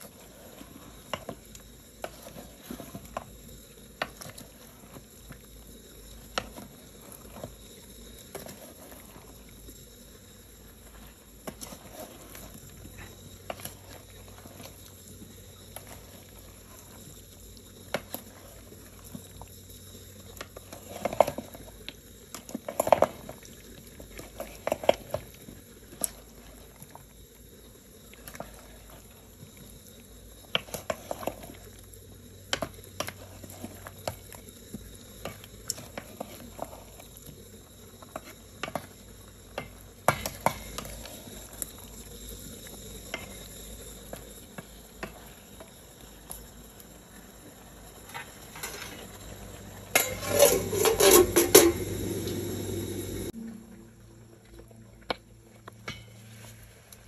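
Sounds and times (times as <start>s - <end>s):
utensils clinking on pots and dishes: 48.0s - 52.4s, 55.8s - 56.2s.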